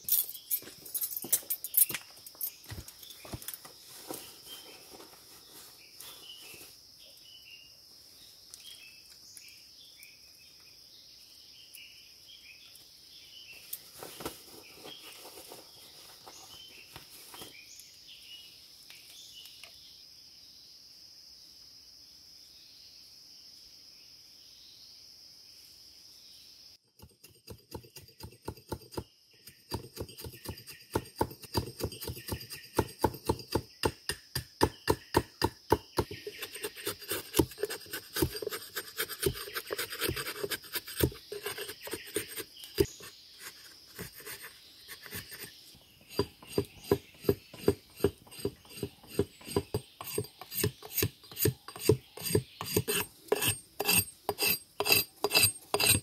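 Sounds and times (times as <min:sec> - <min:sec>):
forest insect chorus: 0:00.0 - 0:26.9, 0:27.6 - 0:56.0
chopping on bamboo: 0:27.0 - 0:43.0, 0:46.2 - 0:56.0.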